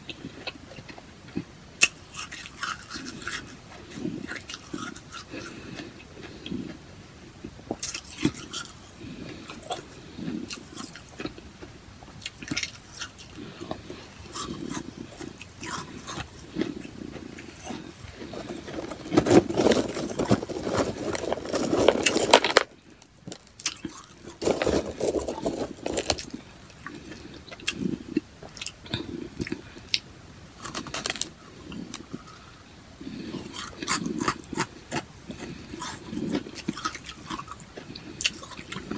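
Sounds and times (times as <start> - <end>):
chewing frost crunches: 0.0 - 6.8, 7.4 - 30.0, 30.6 - 38.9
hand digging ice from tub: 18.2 - 22.7, 24.3 - 26.4.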